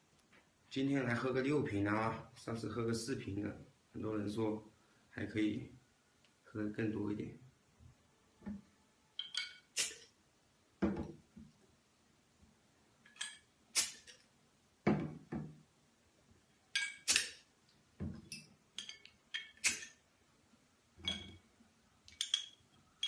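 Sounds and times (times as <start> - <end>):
glass bottles clinking: 9.2 - 9.7, 16.8 - 17.1, 18.2 - 19.6, 21.0 - 21.4, 22.1 - 22.7
bottles thudding on table: 10.8 - 11.2, 14.9 - 15.6.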